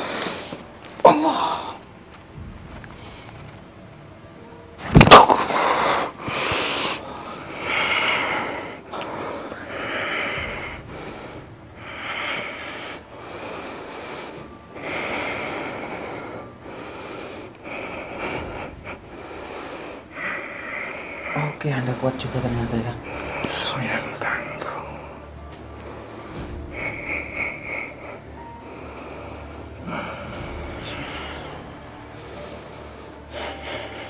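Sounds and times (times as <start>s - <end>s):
man breathing hard: 5.4s - 21.5s, 25.2s - 34.0s.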